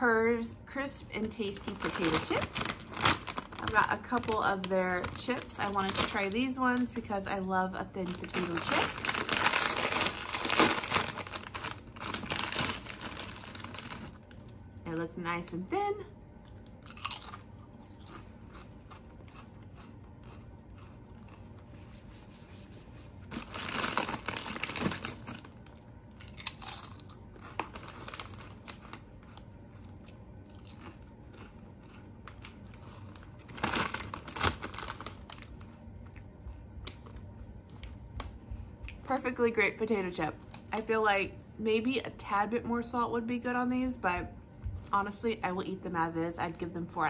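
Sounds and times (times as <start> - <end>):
person crunching potato chips: 1.5 - 7.0, 8.0 - 14.6, 16.5 - 21.8, 23.2 - 36.3
quiet chewing: 16.4 - 22.1, 28.4 - 33.1.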